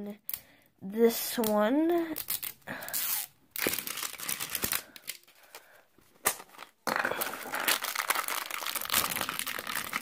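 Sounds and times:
plastic wrapping crinkling: 2.2 - 10.0.

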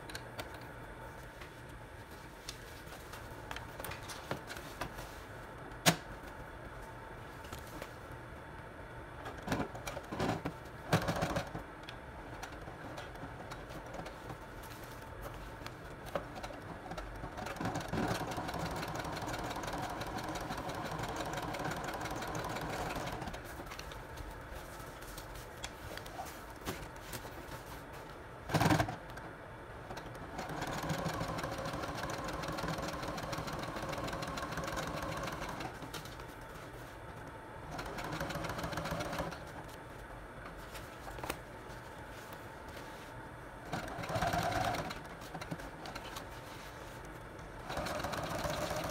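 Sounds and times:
sewing machine stitching: 16.3 - 23.4, 30.3 - 35.8, 43.7 - 46.1, 47.6 - 48.9.

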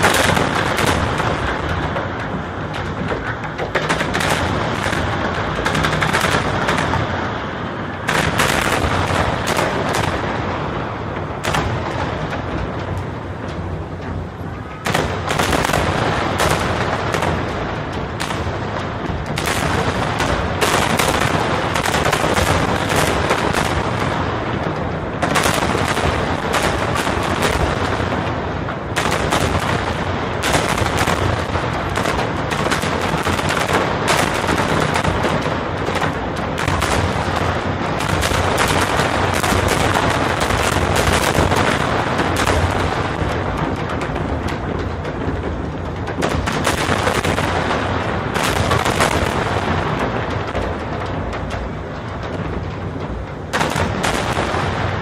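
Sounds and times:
fireworks bursts and crackle: 0.0 - 55.0.

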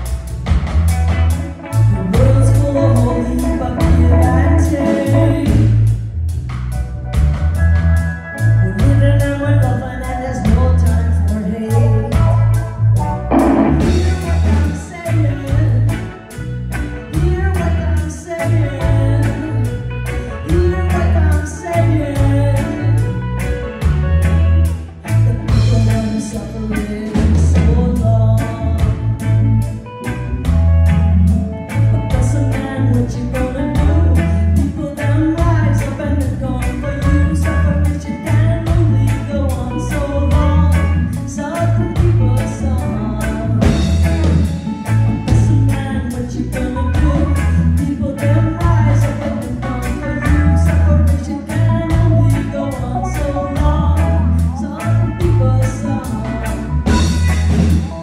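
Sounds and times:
bass line: 0.0 - 58.0
electric guitar: 0.0 - 58.0
woman singing into a microphone: 1.9 - 5.8, 8.6 - 12.6, 13.3 - 16.0, 17.1 - 23.2, 25.2 - 29.0, 32.0 - 44.5, 45.2 - 57.1
steady drum beat: 13.2 - 15.3, 56.8 - 58.0.

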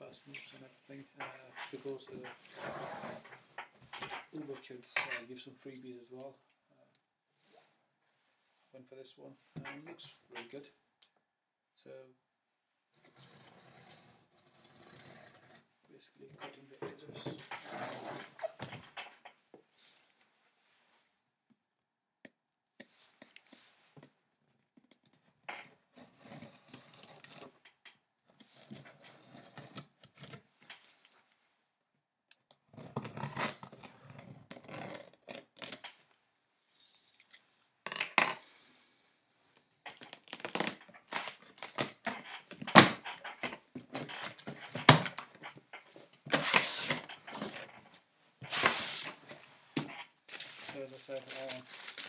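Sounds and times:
packing tape being cut: 40.0 - 45.3, 46.2 - 47.7, 48.4 - 49.4, 50.3 - 52.0
cardboard scraping and crinkling: 40.0 - 52.0.

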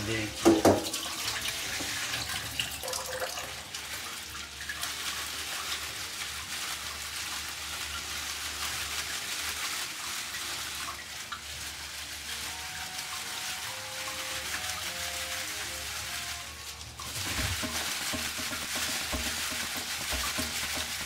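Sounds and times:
kitchen tap running into sink: 0.0 - 21.0
leaves swished under water: 4.7 - 21.0.

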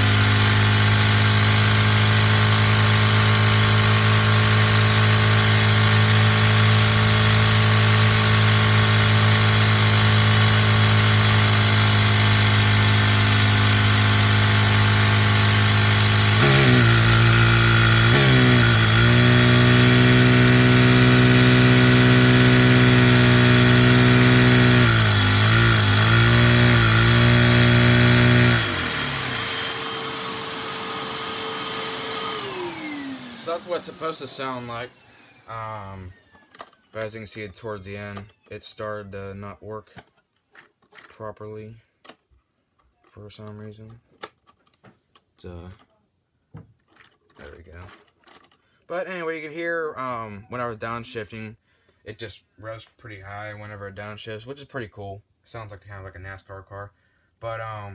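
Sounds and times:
toy engine whirring: 0.0 - 37.4, 46.9 - 48.6.

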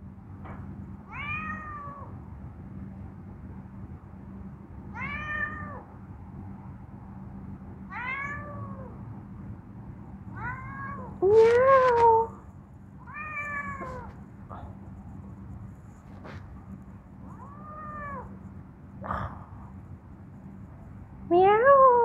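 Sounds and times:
cat meowing: 1.1 - 2.1, 4.9 - 5.8, 7.9 - 8.9, 10.3 - 12.4, 13.0 - 14.2, 17.3 - 18.4.

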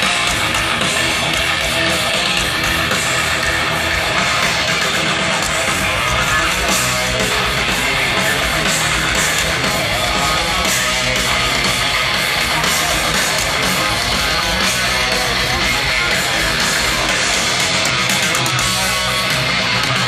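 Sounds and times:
heavy metal band playing live: 0.0 - 20.0.

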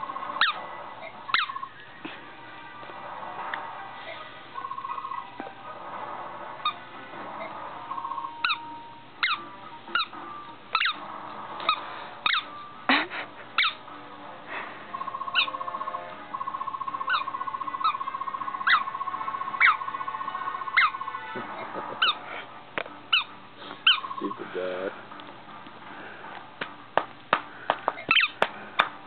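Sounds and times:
squeaky ball squeaks: 0.4 - 1.7, 8.2 - 11.0, 11.6 - 12.7, 13.6 - 13.8, 15.3 - 15.6, 17.0 - 18.0, 18.6 - 18.9, 19.6 - 19.9, 23.1 - 24.4, 28.0 - 28.4.

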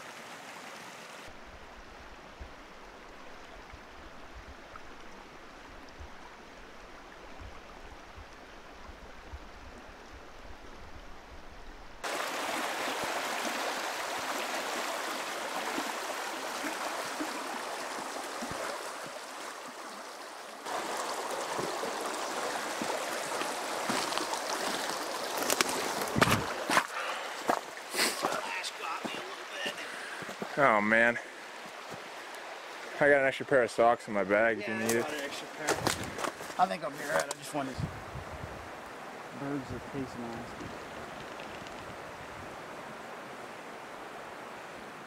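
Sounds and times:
brook rushing over stones: 12.0 - 31.0, 34.6 - 37.8.

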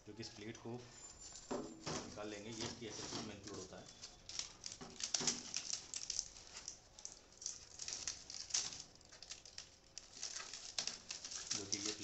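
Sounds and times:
cardboard handled: 1.5 - 6.8
tape peeling off cardboard: 1.9 - 12.0.

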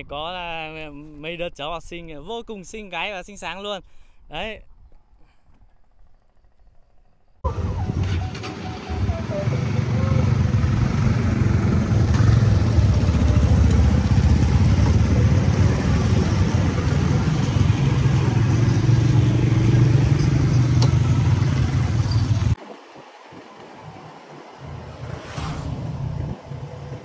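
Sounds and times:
motorbikes riding past: 7.5 - 22.6, 23.9 - 27.0.

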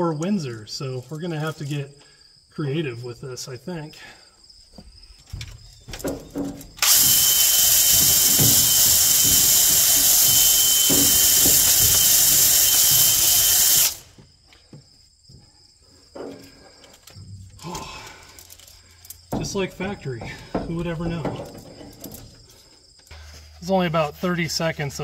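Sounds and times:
drill whining: 6.7 - 14.2.

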